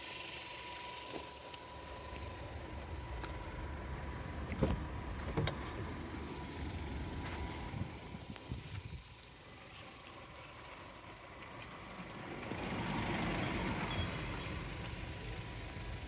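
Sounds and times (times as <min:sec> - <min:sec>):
low steady rumble: 0:00.0 - 0:12.9
car door latch clicks: 0:04.6 - 0:05.7.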